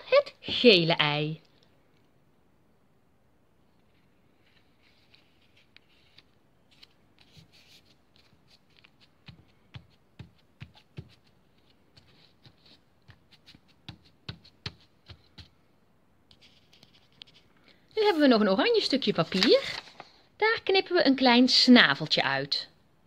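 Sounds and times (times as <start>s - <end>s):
paper rustling and rubbing: 3.9s - 15.5s, 16.3s - 20.2s
fingers tapping and patting: 8.8s - 15.6s.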